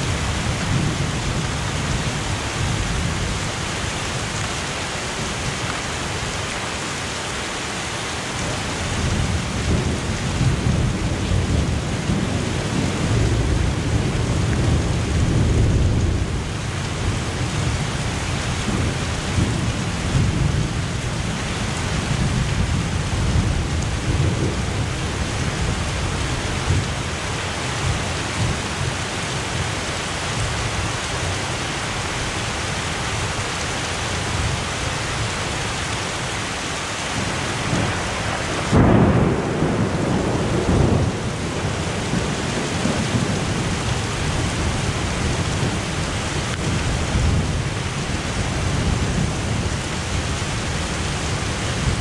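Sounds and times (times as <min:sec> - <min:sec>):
thunder rumbling: 0:00.0 - 0:03.5, 0:08.9 - 0:29.7, 0:37.1 - 0:52.0
heavy rain pouring: 0:00.0 - 0:52.0.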